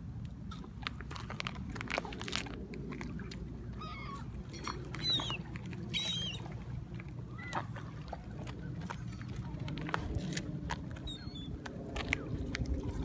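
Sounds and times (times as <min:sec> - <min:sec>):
low background rumble: 0:00.0 - 0:13.0
gulls calling: 0:03.5 - 0:09.6, 0:10.9 - 0:12.4.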